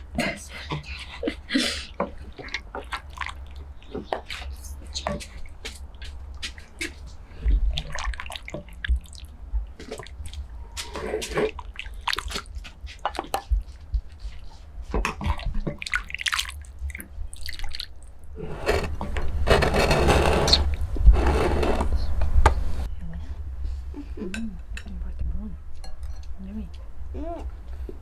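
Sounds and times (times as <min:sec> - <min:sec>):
sauce dripping and splashing: 0:15.1 - 0:18.2.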